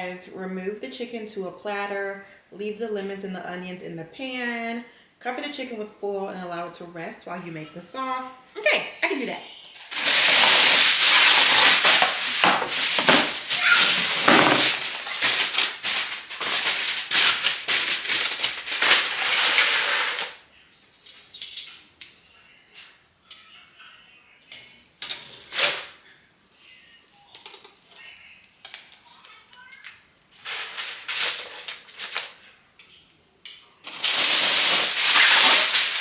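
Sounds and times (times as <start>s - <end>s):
aluminium foil crinkling: 9.8s - 20.4s, 27.2s - 32.6s, 33.8s - 36.0s.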